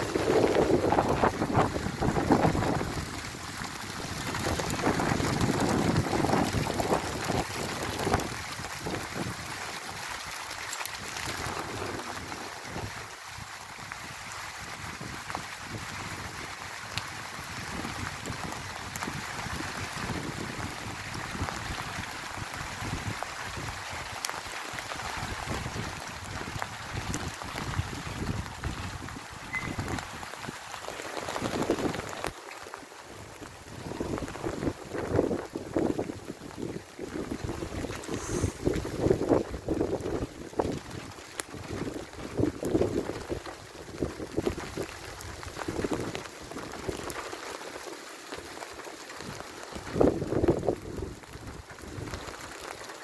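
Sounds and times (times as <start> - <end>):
wind buffeting microphone: 0.0 - 9.6, 25.2 - 30.5, 49.8 - 52.2
hail pattering on cars and pavement: 0.0 - 53.0.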